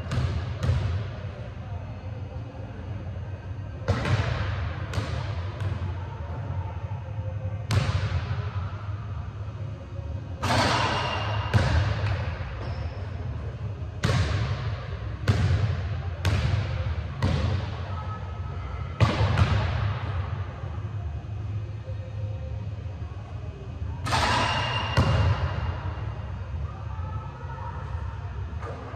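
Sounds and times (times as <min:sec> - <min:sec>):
low hum: 0:14.6 - 0:28.9.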